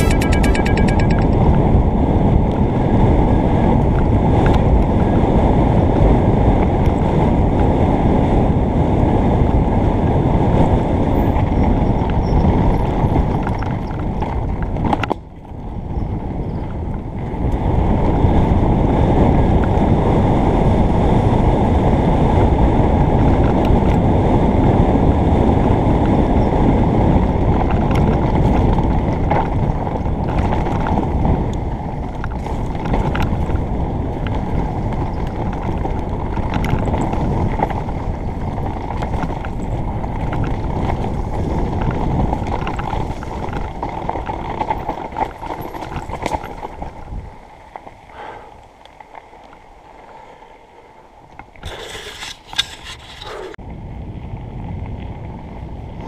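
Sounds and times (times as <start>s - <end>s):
wind buffeting microphone: 1.4s - 56.0s
bike tyres rumbling on dirt: 2.7s - 56.0s.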